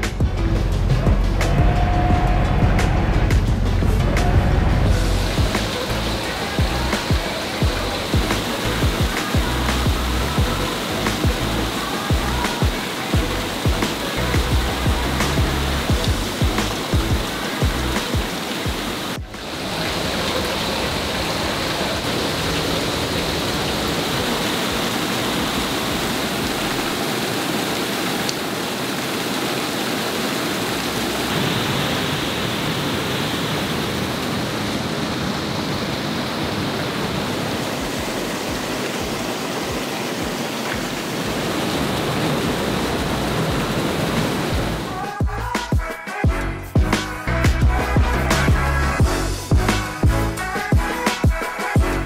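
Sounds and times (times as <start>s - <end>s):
water rushing into lock chamber: 0.0s - 45.7s.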